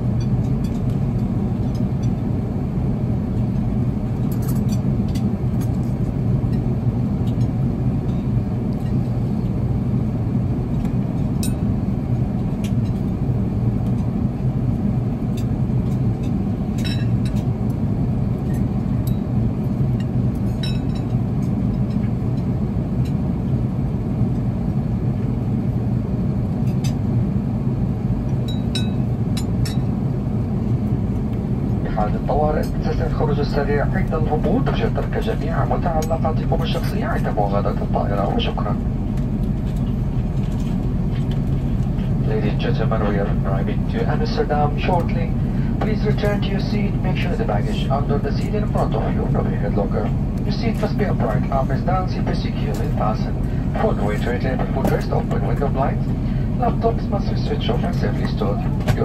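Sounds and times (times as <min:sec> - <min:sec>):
aircraft cabin rumble: 0:00.0 - 0:59.0.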